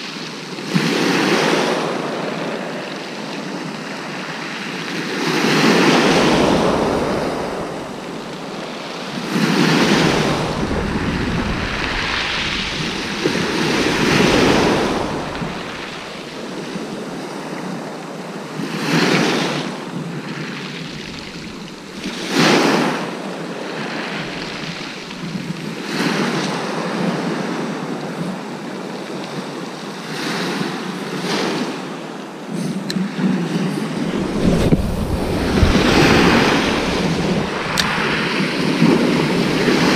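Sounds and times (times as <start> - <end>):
waves breaking on shingle beach: 0.0 - 27.9, 30.0 - 39.9
wind on microphone: 5.2 - 17.8, 18.9 - 27.2, 32.7 - 39.9.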